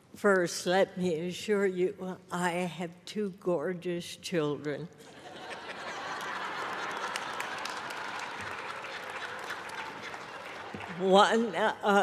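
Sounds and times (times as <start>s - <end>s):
audience applause: 5.9s - 11.1s.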